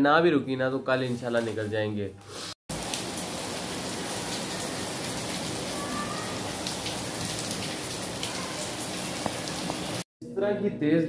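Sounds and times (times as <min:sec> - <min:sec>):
heavy rain falling: 0:02.7 - 0:10.0.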